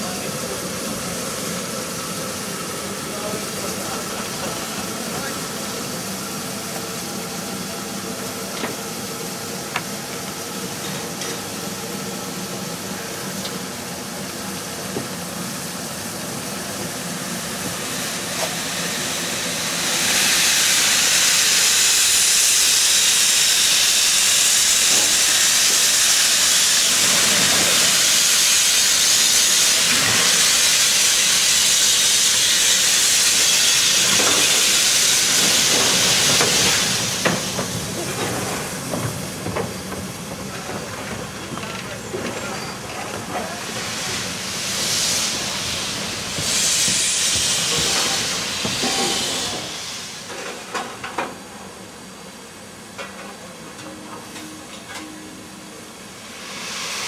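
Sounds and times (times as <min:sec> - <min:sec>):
steam hissing: 0:00.0 - 0:51.0, 0:56.0 - 0:57.0.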